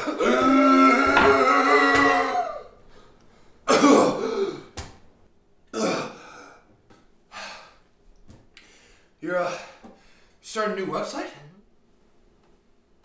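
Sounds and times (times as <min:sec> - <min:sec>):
man coughing and clearing throat: 0:03.7 - 0:04.2.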